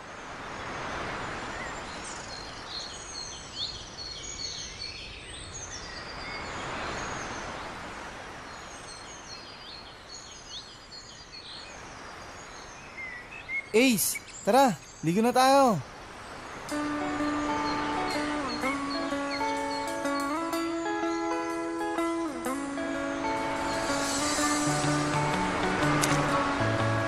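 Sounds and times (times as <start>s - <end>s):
wind: 0.0s - 27.0s
sea wash: 13.8s - 27.0s
faint high bird-like chirps: 17.2s - 22.1s.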